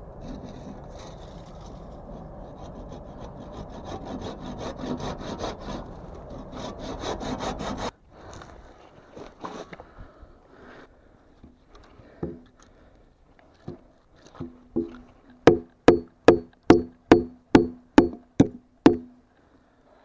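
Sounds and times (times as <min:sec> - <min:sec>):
wood struck with hollow ring: 0:14.4 - 0:19.2.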